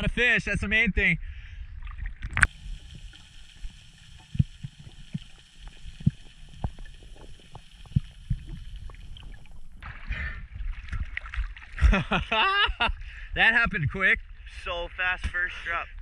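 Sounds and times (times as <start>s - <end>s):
low underwater knocks and pops: 1.8s - 2.5s, 4.3s - 12.1s
faint underwater hiss: 2.4s - 10.5s.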